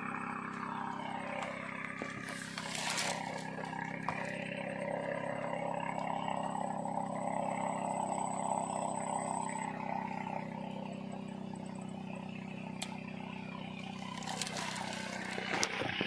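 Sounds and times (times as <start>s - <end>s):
boat engine humming: 0.0s - 16.0s.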